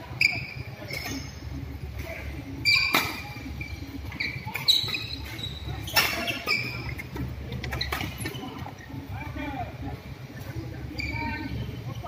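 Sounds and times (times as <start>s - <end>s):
shoes squeaking on court: 0.1s - 1.5s, 2.6s - 8.9s, 10.8s - 11.6s.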